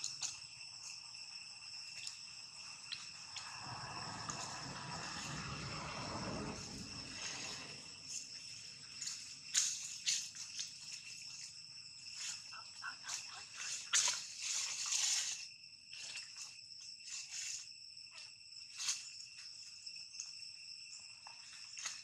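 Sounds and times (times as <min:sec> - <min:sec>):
high-pitched insect chorus: 0:00.0 - 0:22.0
dry leaves rustling: 0:08.2 - 0:16.2.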